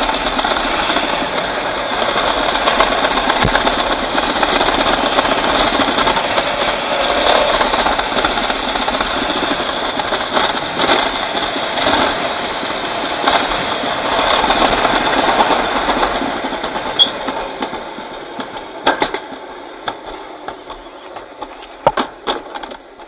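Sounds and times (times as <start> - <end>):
sled rattling down metal track: 0.0 - 23.0
sharp knocks: 3.4 - 4.0.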